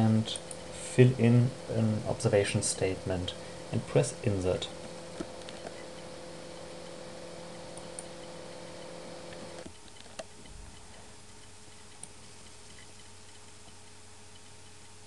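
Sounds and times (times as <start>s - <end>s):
faint background hum: 0.0s - 15.0s
computer mouse clicks: 0.3s - 0.6s, 7.7s - 8.2s, 9.3s - 15.0s.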